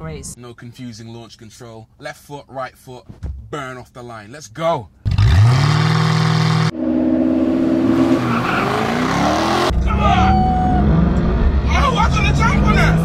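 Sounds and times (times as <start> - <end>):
car engines revving: 5.0 - 13.0.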